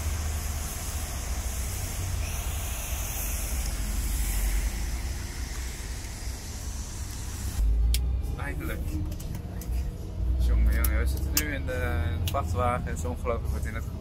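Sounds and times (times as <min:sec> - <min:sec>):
tyres hissing on wet road: 0:00.0 - 0:07.7.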